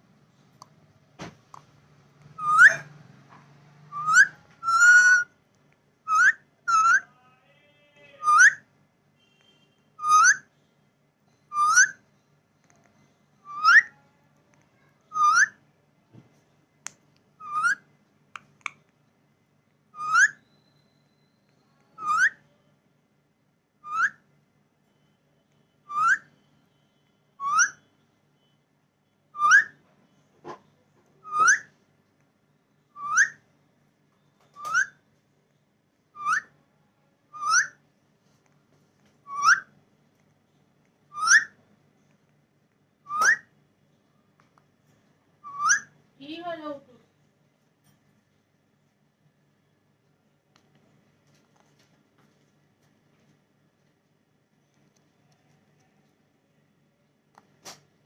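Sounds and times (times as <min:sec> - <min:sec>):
parakeet rising whistled call: 0:02.4 - 0:02.9, 0:03.9 - 0:05.2, 0:20.0 - 0:20.6, 0:41.1 - 0:41.5, 0:45.4 - 0:45.9.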